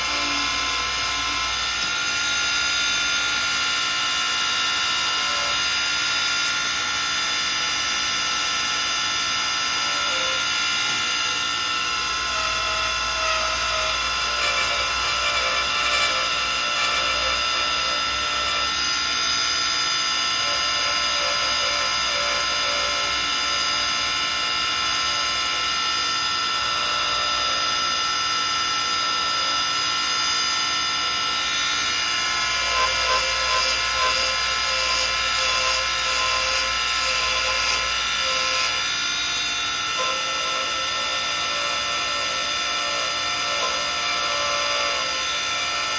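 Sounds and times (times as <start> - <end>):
wood lathe whining: 0.0 - 45.9
chisel scraping wood: 9.9 - 10.4, 12.3 - 18.8, 32.4 - 38.8.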